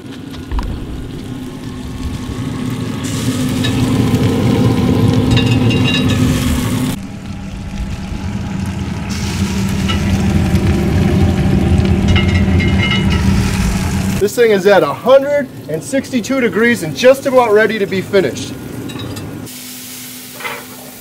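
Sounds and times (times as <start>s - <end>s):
meat juices sizzling and crackling: 0.0s - 14.2s
smoker fan humming: 0.0s - 20.4s.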